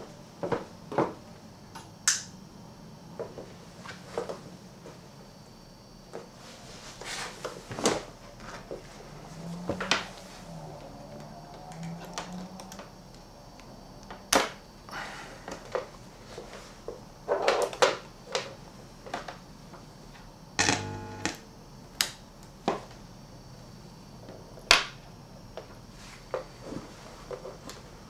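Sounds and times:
cables and parts clicking: 11.1 - 13.7
faint wavering hum: 20.3 - 22.4.

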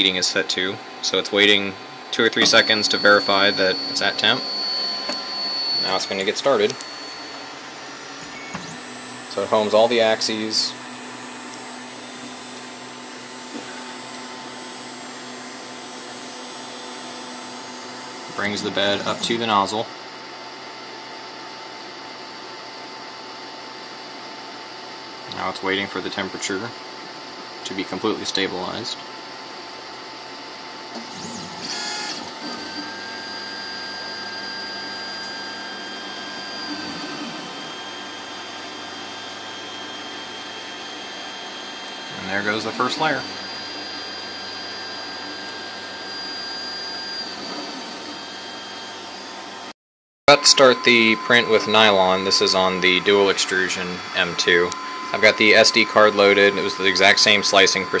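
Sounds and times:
printer fans humming: 0.0 - 19.8, 50.3 - 58.0
three d printer whirring: 1.3 - 15.0, 33.9 - 46.3
stepper motors whining: 2.2 - 19.6, 31.0 - 49.3, 50.3 - 58.0.

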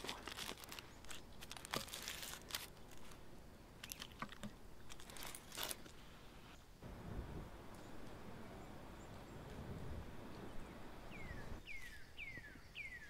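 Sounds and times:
baking paper rustling: 0.0 - 3.2, 3.8 - 6.1
crisp pizza crust crackling: 0.0 - 6.0.

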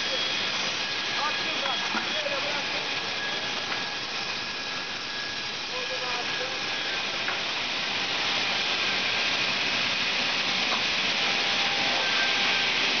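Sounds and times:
saw machine rushing noise: 6.1 - 13.0.

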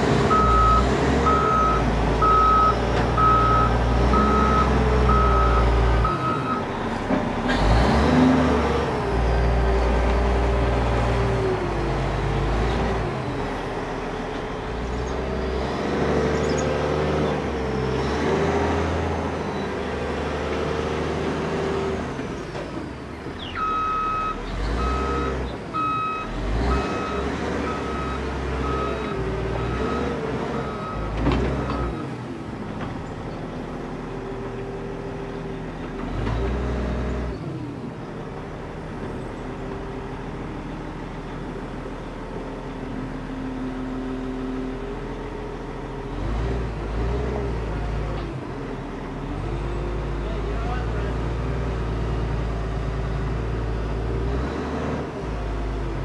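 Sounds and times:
diesel engine revving: 0.0 - 56.0
reversing alarm beeping: 0.3 - 6.6, 23.4 - 31.1.

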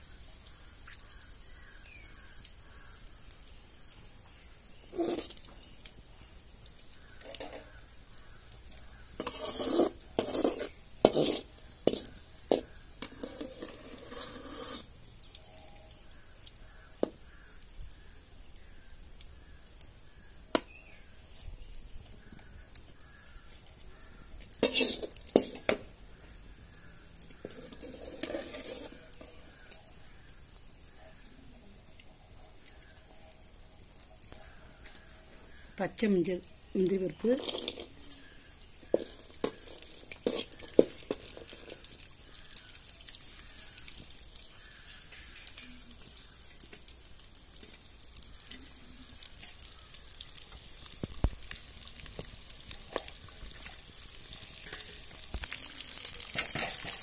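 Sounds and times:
metal ladle scraping a pot: 4.9 - 5.4, 8.7 - 14.9, 24.5 - 25.8, 27.3 - 29.8, 37.4 - 41.9.

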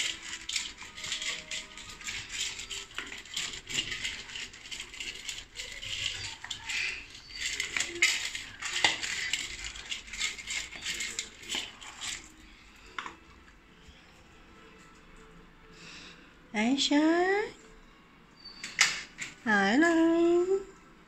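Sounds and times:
kibble rattling in metal bowl: 0.0 - 13.2.

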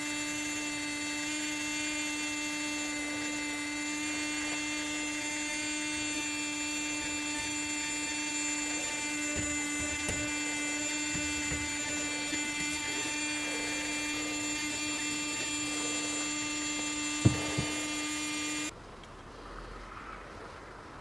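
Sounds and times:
heat pump compressor humming: 0.0 - 18.8
sharp knocks: 17.2 - 18.0.

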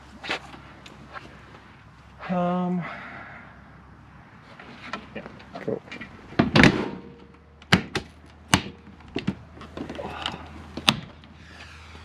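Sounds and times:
loud thunk: 6.4 - 9.4.

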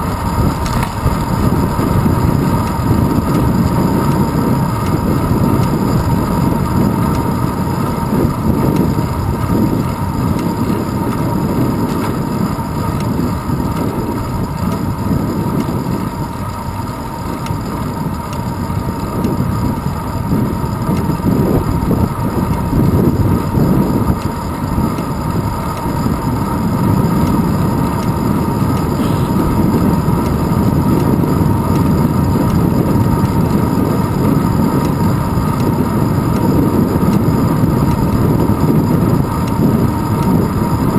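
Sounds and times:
wind buffeting microphone: 0.0 - 40.9
faint steady whine: 14.2 - 40.9.

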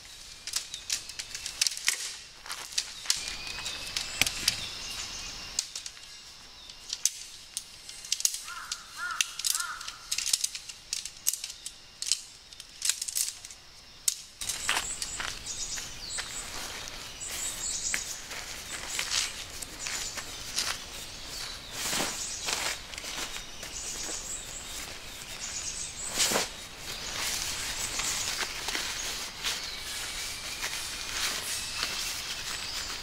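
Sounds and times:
tent poles clicking: 0.0 - 4.8, 5.5 - 33.0
tent fabric rustling: 14.4 - 33.0.

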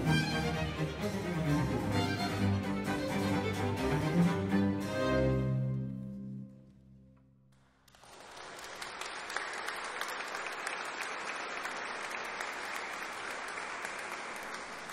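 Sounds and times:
audience applause: 7.7 - 14.9.

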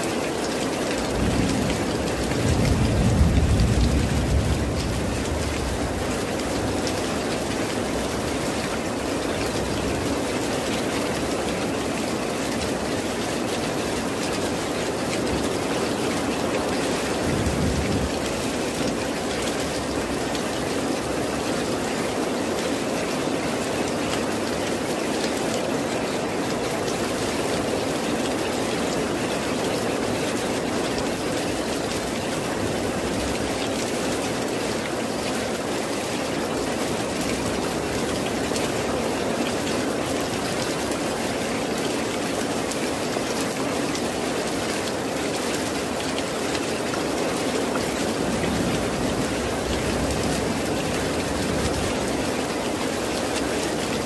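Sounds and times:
heavy rain on leaves: 0.0 - 54.0.

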